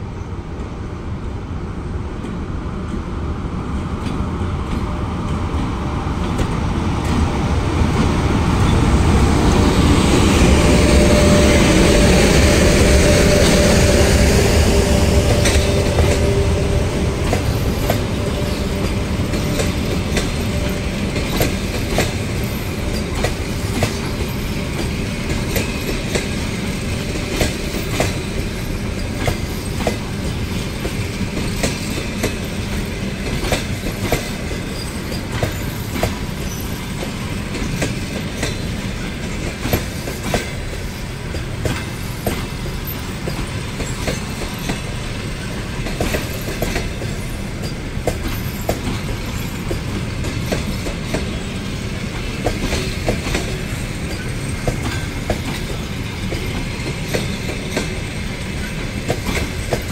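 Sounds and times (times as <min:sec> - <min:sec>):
train wheels rumbling on rails: 0:00.0 - 0:59.9
wheels clacking over rail joints: 0:04.0 - 0:59.9.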